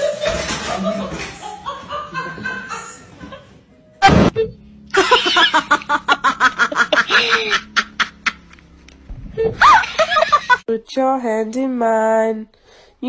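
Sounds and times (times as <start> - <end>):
person laughing hard: 4.9 - 8.6, 9.4 - 10.6.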